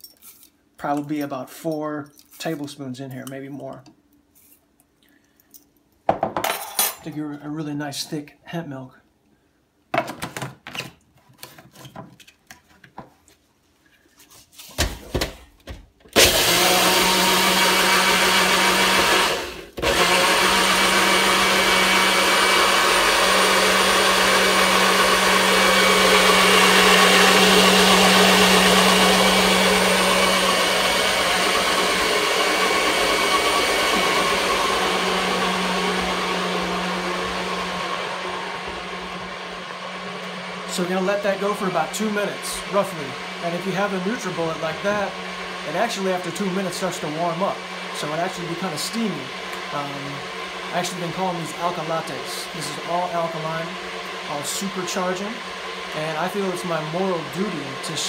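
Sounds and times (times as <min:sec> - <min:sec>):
blender motor running: 0:16.2 - 0:58.0.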